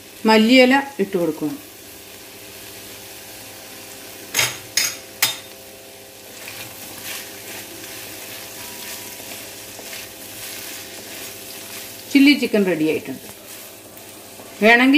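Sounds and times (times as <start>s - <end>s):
chicken sizzling in a pan: 0.0s - 14.9s
spoon clanking against pan: 4.3s - 5.6s
spoon scraping pan: 6.4s - 12.0s.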